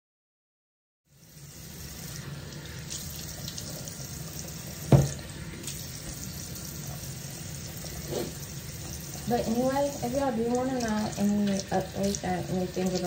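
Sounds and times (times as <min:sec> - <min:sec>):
tap running into a sink: 0:04.4 - 0:06.4.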